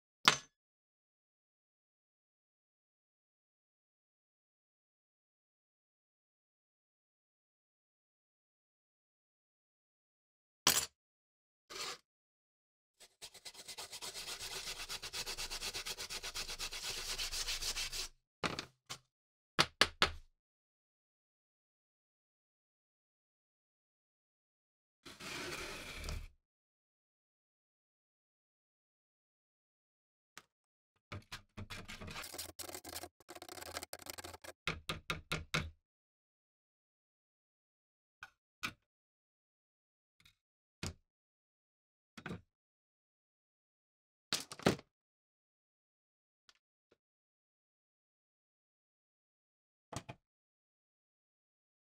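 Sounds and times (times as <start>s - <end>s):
blade scraping and knocking: 31.7s - 34.6s
metal rod stirring in plastic jug: 32.0s - 34.6s.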